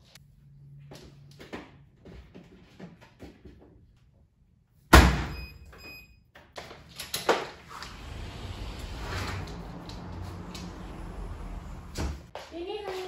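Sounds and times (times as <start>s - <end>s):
sliding glass door opening: 7.6s - 12.3s
low steady rumble: 7.8s - 12.3s.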